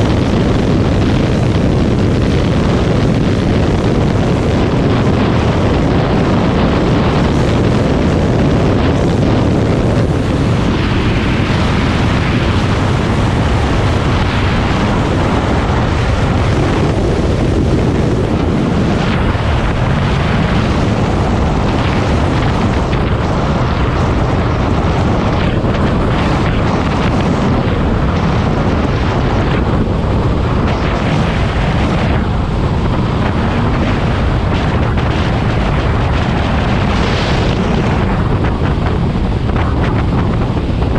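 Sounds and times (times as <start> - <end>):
wind rush on microphone: 0.0 - 40.9.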